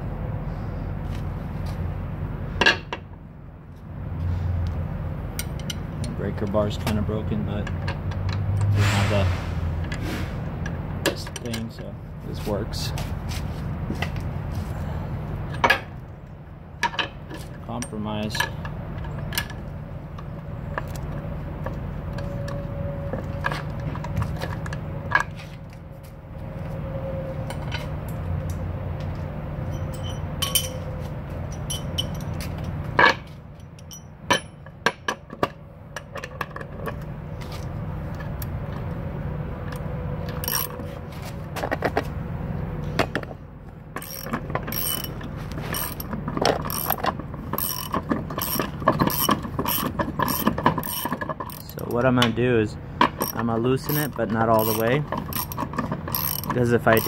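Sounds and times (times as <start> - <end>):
socket wrench ratchet clicking: 40.4 - 40.8, 44.0 - 45.2, 45.8 - 51.9, 53.2 - 57.0.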